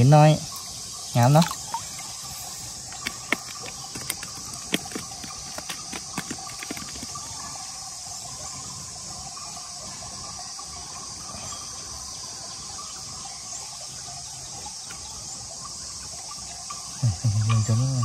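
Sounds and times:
flowing water rushing: 1.2 - 7.4
sharp knocks: 3.0 - 7.3.

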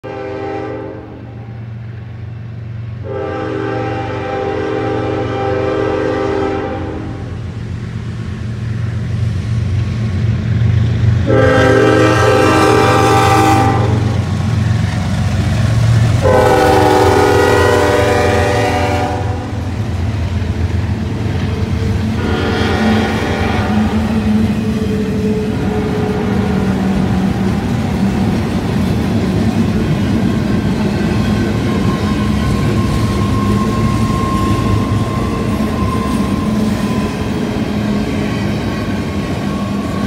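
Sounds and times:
locomotive air horn blasts: 0.0 - 1.5, 3.0 - 7.4, 11.2 - 14.2, 16.2 - 19.7, 22.2 - 24.3, 25.0 - 26.8
freight train rumbling: 0.0 - 40.0.

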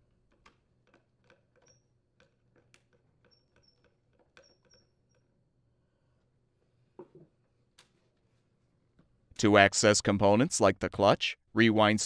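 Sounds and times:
thin high squeaks: 3.2 - 5.4.

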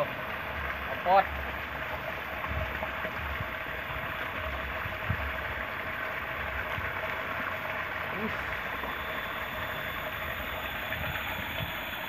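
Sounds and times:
low rumbles: 0.0 - 12.0
water pouring over weir: 0.0 - 12.0.

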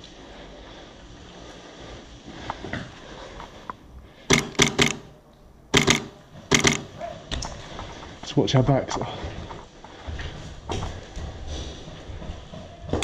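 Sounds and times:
airsoft rifle shots: 4.3 - 7.0.

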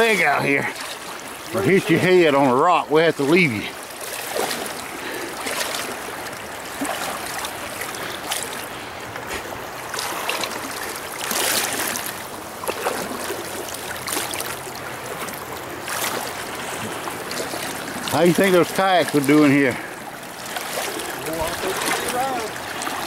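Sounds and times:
river rapids rushing: 0.0 - 23.0
wading splashes: 0.0 - 23.0.

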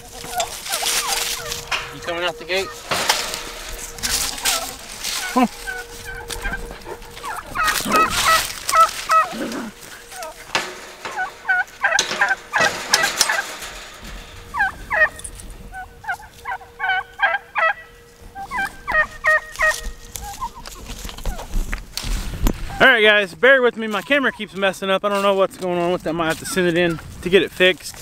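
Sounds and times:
footsteps on dry grass: 0.0 - 17.4, 18.1 - 22.7
poultry calling: 0.0 - 21.6.

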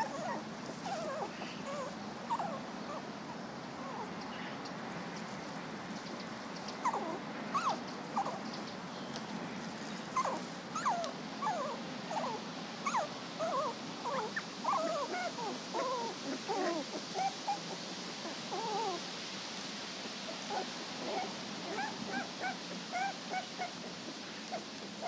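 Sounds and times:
puppies whimpering: 0.0 - 4.1, 6.8 - 8.4, 10.1 - 19.0, 20.3 - 25.0.

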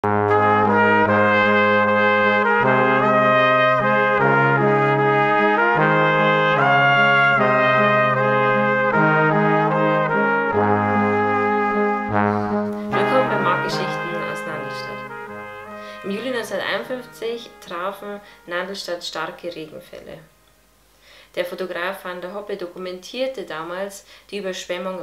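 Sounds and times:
brass quartet playing chords: 0.0 - 18.8.

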